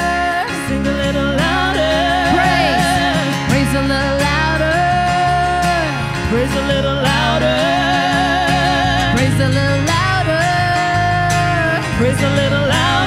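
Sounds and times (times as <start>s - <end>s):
women singing in harmony: 0.0s - 5.5s, 6.5s - 10.4s, 12.1s - 13.0s
acoustic guitar: 0.0s - 13.0s.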